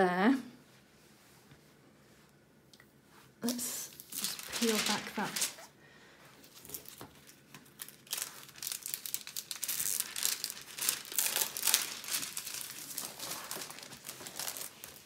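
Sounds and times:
plastic film peeling and crinkling: 3.4 - 5.7, 6.4 - 15.0.

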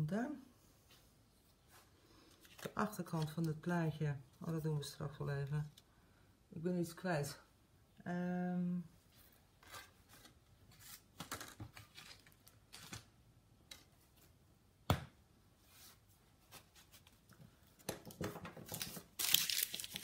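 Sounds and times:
hands rummaging through craft supplies: 17.8 - 20.0.

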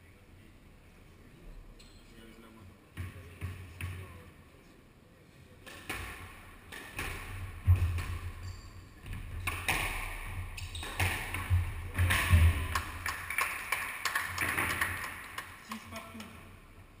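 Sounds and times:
squash ball hitting rackets and walls: 2.9 - 4.2, 5.6 - 15.3.

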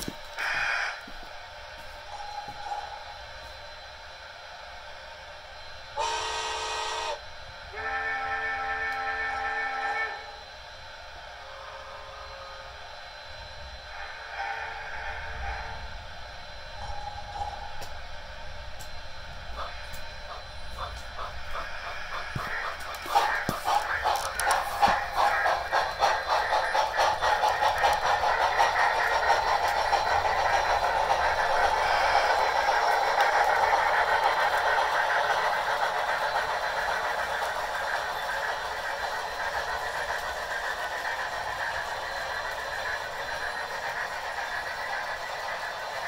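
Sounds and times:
model train steam chuffing: 0.0 - 1.2, 1.8 - 46.0
wheels clicking on track: 18.7 - 46.0.

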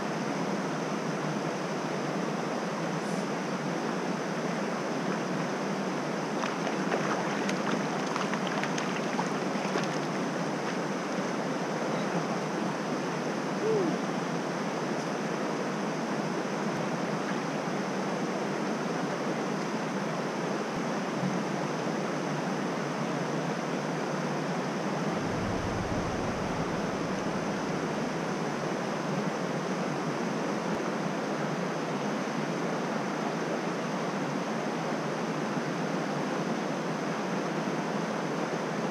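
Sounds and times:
stream rushing over stones: 6.0 - 11.3.

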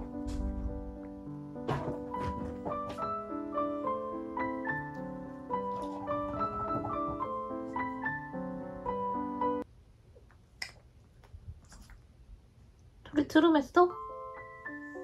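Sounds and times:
light piano melody: 0.0 - 9.7, 13.8 - 15.0.

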